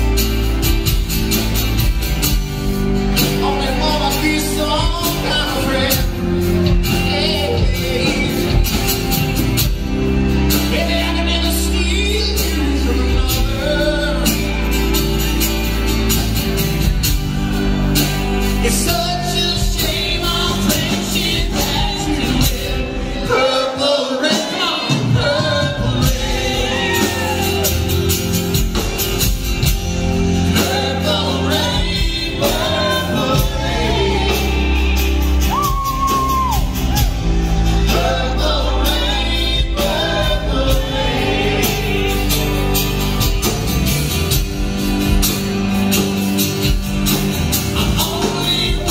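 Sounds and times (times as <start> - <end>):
live country-rock band: 0.0 - 48.9
person singing: 3.1 - 15.2, 18.5 - 28.4, 47.6 - 48.9.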